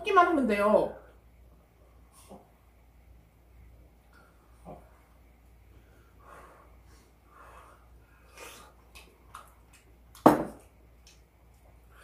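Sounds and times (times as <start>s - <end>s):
soft breathing: 4.2s - 8.9s
loud sharp knock: 10.3s - 10.6s.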